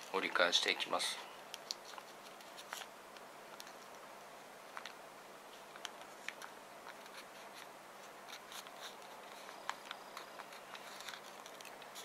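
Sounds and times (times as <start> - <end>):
paper rustling and creasing: 0.0 - 4.0, 4.7 - 12.0.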